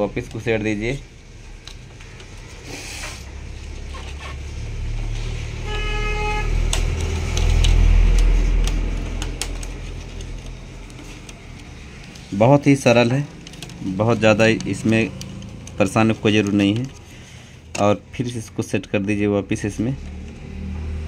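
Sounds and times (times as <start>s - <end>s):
short horn toot: 5.6s - 6.6s.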